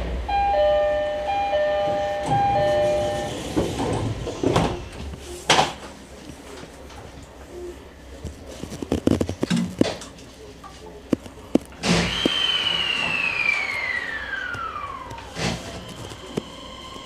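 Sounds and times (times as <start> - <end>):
two-note electronic door chime: 0.3 - 3.4.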